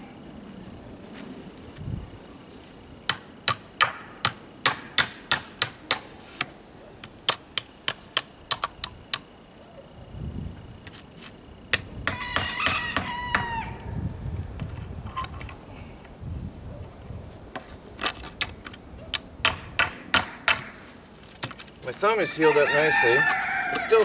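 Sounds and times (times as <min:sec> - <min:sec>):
rooster crowing: 0:12.0 - 0:14.0, 0:22.2 - 0:24.0.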